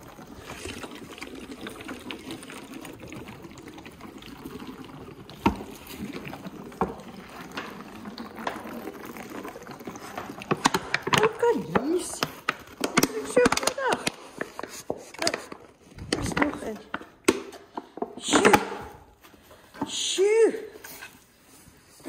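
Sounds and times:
elephant calf slurping from bottle: 0.0s - 16.0s.

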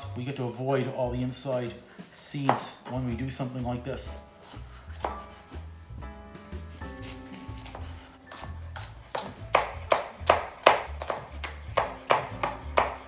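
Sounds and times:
music with steady bass beat: 4.1s - 13.0s
knife slicing on cutting board: 4.2s - 5.6s, 6.7s - 13.0s.

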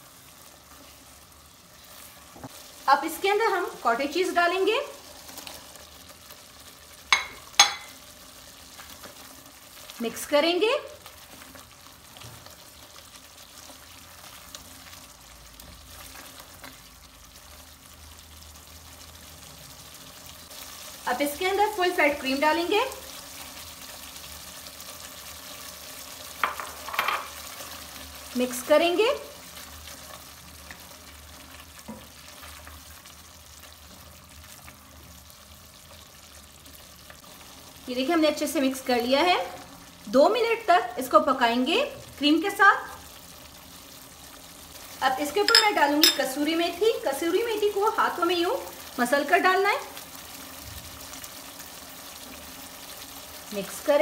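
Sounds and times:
gravy stirring and sizzling: 0.0s - 54.0s.

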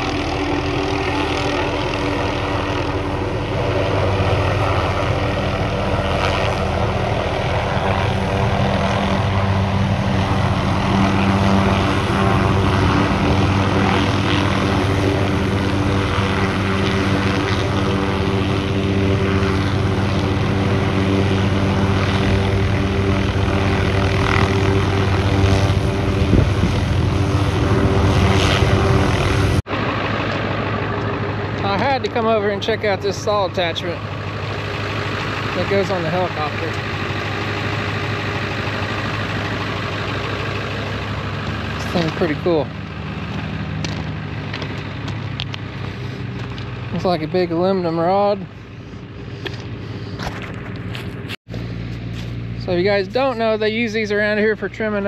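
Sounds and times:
helicopter rotor and engine: 0.0s - 55.0s.

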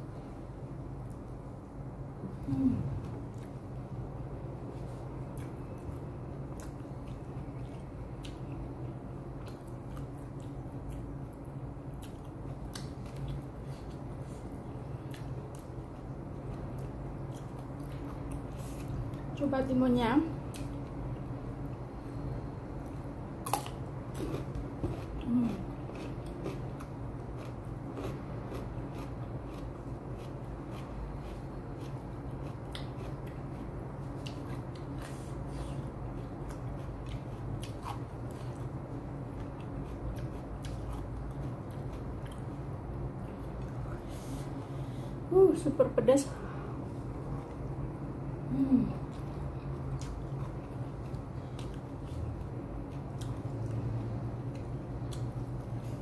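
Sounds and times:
steady low hum: 0.0s - 56.0s
person chewing food: 3.0s - 19.2s, 20.5s - 44.8s, 49.0s - 56.0s
crisp chewing crunches: 23.4s - 42.6s.

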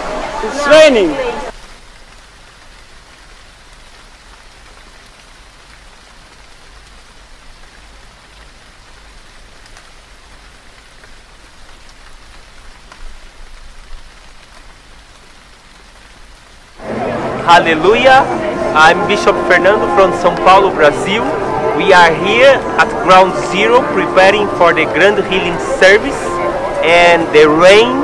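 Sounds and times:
rain hiss: 0.0s - 28.0s
raindrops ticking: 1.5s - 16.8s.

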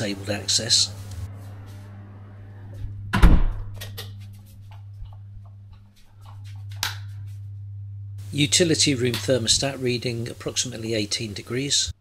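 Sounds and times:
steady low hum: 0.0s - 12.0s
door thudding shut: 3.1s - 3.8s.

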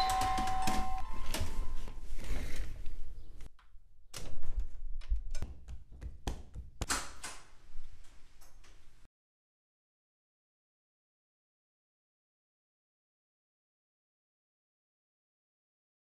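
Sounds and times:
irregular knocks and thuds: 4.2s - 6.9s.

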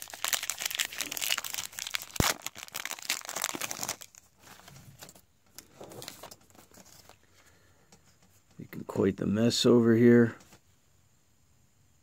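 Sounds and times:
card pack wrapper crinkling and tearing: 0.0s - 7.2s.

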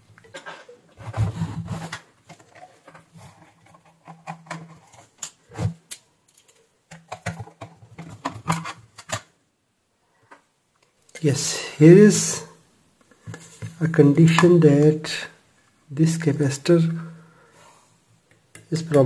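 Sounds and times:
metal cover being handled: 0.2s - 5.3s.

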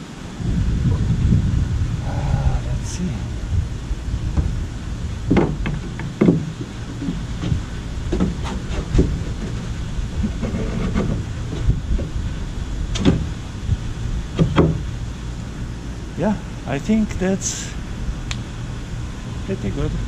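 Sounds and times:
steady low rumble: 0.0s - 20.0s
wooden yoke knocking on canoe: 5.3s - 9.6s, 14.4s - 14.8s.

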